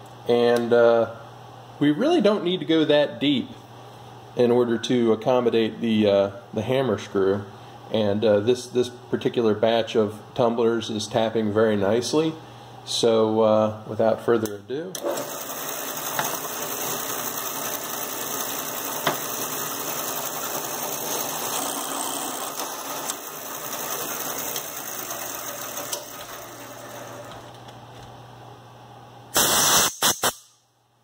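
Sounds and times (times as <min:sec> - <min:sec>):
drill press running: 0:15.0 - 0:28.1.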